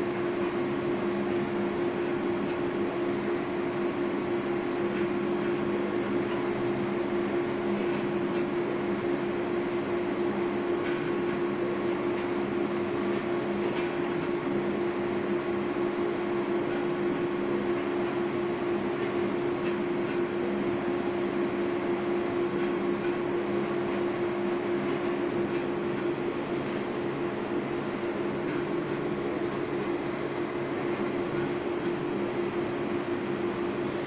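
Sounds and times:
printer carriage moving with mechanical hum: 0.0 - 34.0.

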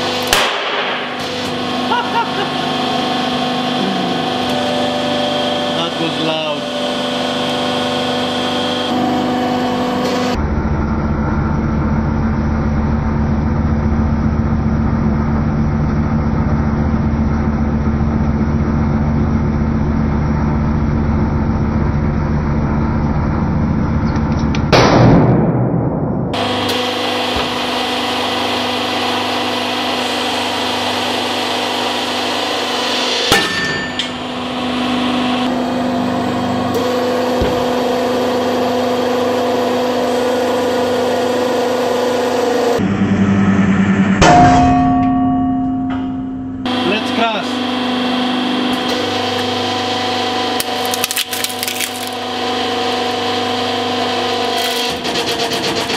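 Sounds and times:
hydraulic press pump motor humming: 0.0 - 14.2, 26.4 - 55.9.

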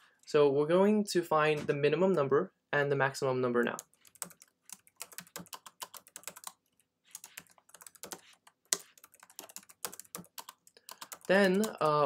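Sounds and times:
typing on computer keyboard: 3.7 - 12.0.

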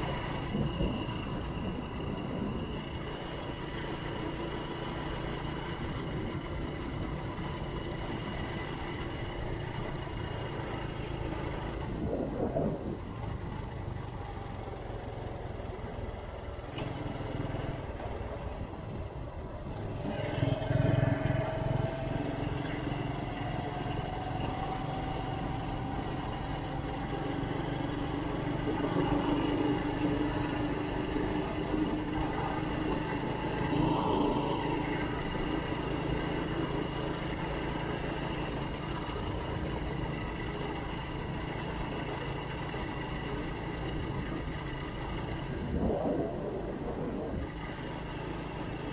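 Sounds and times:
vehicle engine running: 0.0 - 48.9.

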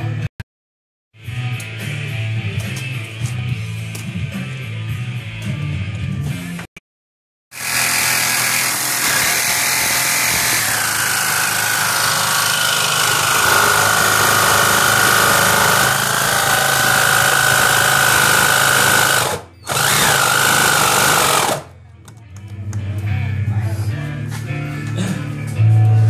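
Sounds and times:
jigsaw cutting sheet metal: 7.5 - 21.7.

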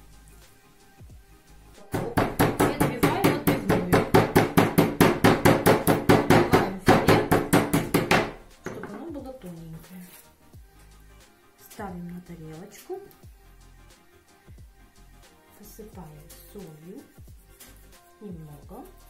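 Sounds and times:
meat mallet pounding on wooden board: 1.8 - 9.0.

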